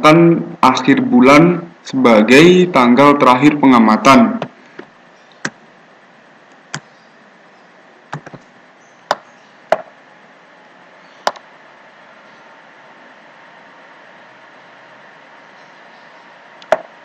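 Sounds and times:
computer keys clicking: 8.1s - 8.4s.

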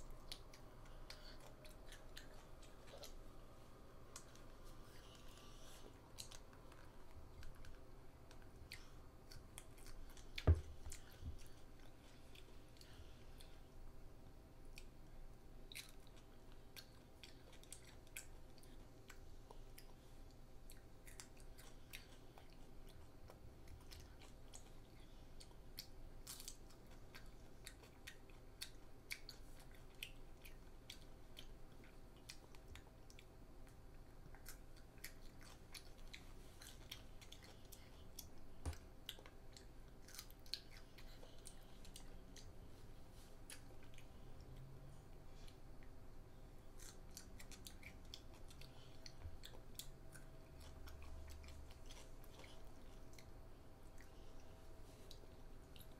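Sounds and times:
child crunching cucumber: 20.7s - 42.6s, 46.7s - 53.3s.

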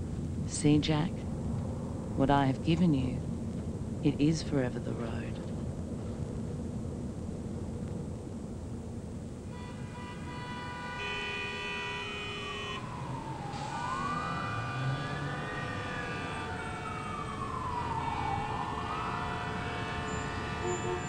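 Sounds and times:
city traffic rumble: 0.0s - 21.0s
emergency siren wailing: 9.5s - 21.0s.

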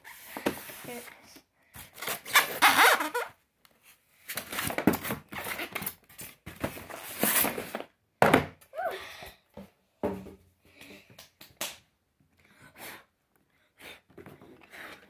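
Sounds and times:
foam squeaking against cardboard: 2.2s - 3.4s.

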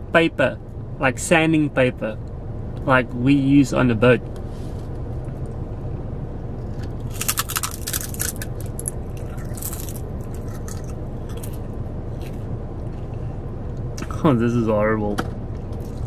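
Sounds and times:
chewing crisp seaweed: 7.0s - 11.6s.

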